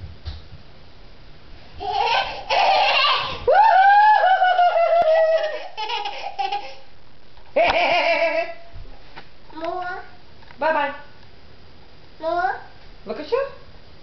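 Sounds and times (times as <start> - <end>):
toddler laughing: 1.8 - 3.5, 4.5 - 6.9.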